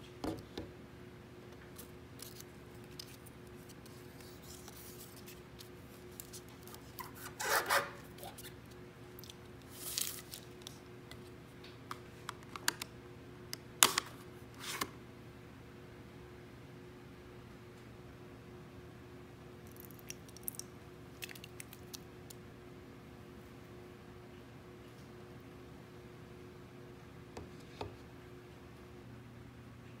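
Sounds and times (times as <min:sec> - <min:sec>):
paper wrapper rustling and tearing: 0:01.8 - 0:07.6, 0:09.7 - 0:10.8.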